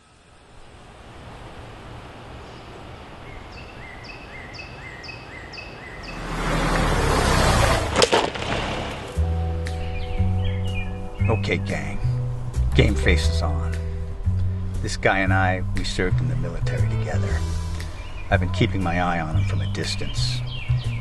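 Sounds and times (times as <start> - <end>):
car tyre and engine noise: 0.0 - 9.3
bird calling: 2.3 - 7.6, 9.5 - 12.2, 16.4 - 21.0
music: 9.1 - 21.0.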